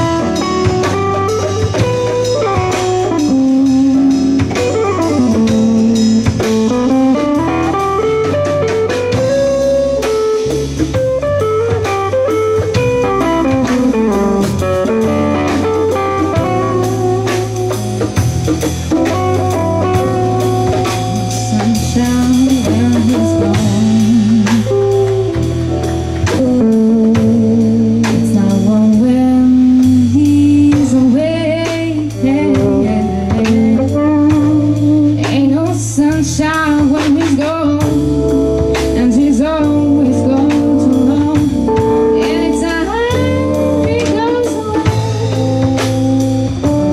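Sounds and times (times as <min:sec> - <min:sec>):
lead electric guitar: 0:00.0 - 0:46.9
live band playing blues jazz: 0:00.0 - 0:46.9
woman singing: 0:21.2 - 0:45.7.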